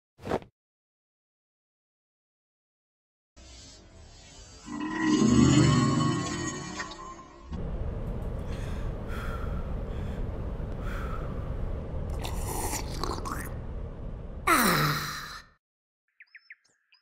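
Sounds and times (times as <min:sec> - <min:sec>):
low rumbling: 0:07.6 - 0:14.5
faint breathy sounds: 0:08.4 - 0:11.6.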